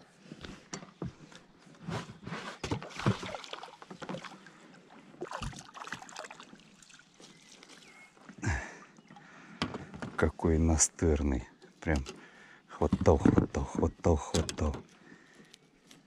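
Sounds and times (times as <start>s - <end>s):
landing net scooping through water: 1.9s - 8.2s
fish splashing at water surface: 2.8s - 4.4s.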